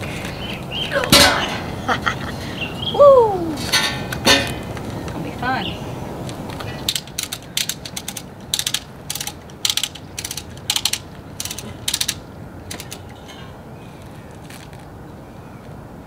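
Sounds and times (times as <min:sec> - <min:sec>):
socket ratchet clicking: 0:06.9 - 0:13.1.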